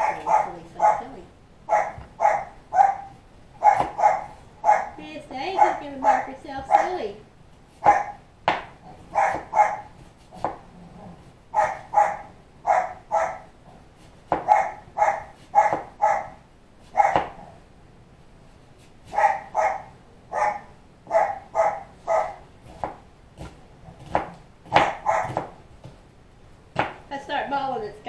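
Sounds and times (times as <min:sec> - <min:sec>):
puppy barking: 0:00.0 - 0:07.1, 0:07.8 - 0:08.2, 0:09.1 - 0:10.0, 0:11.5 - 0:13.5, 0:14.3 - 0:17.6, 0:19.1 - 0:22.5, 0:24.7 - 0:25.5.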